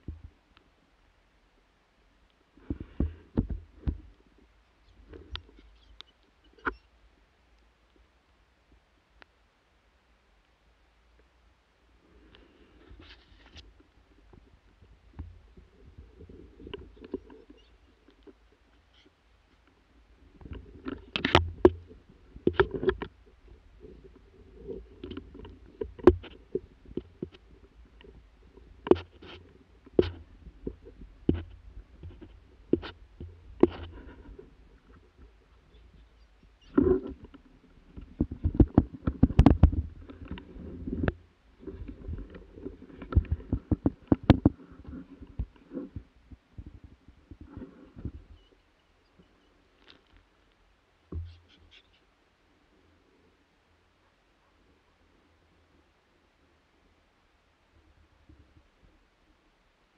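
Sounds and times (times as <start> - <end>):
twigs and clothing rustling: 12.0 - 52.1
sharp knocks and clicks: 25.0 - 27.4, 28.8 - 34.3, 38.0 - 42.4, 43.0 - 45.6.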